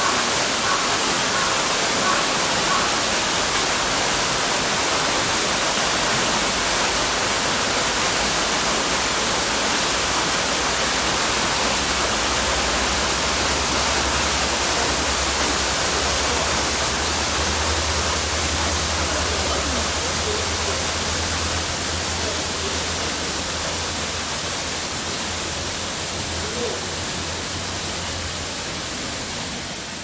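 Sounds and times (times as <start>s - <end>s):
waterfall rushing: 0.0s - 30.0s.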